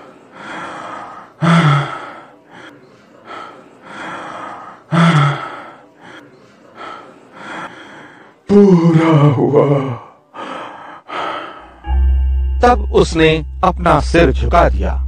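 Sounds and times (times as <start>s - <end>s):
man breathing laboriously: 0.0s - 8.4s, 10.3s - 11.9s.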